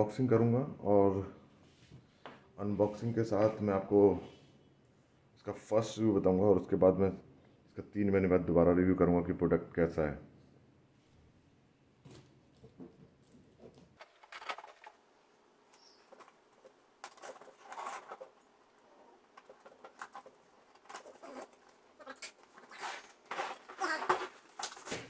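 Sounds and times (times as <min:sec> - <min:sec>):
cardboard and tape scraping: 0:15.9 - 0:25.0.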